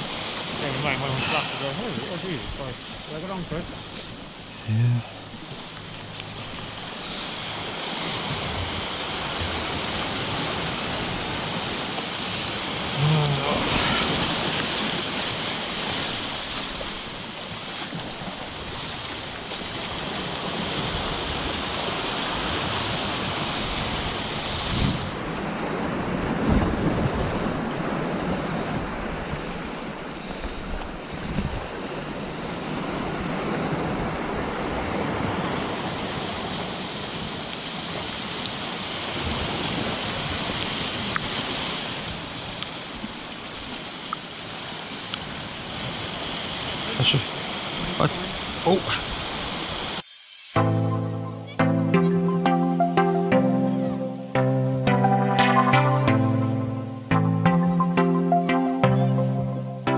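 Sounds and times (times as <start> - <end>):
surf breaking over rocks: 0.0 - 4.5, 5.1 - 50.2
wind buffeting microphone: 5.8 - 13.0, 17.9 - 43.8.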